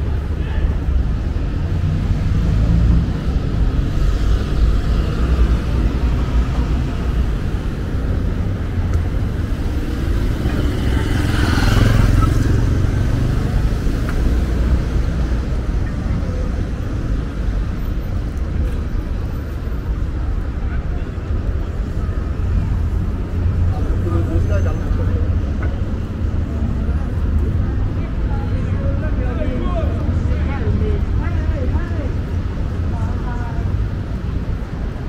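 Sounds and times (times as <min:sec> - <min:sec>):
rumble of road traffic: 0:00.0 - 0:35.0
motorcycle passing close: 0:10.3 - 0:13.7.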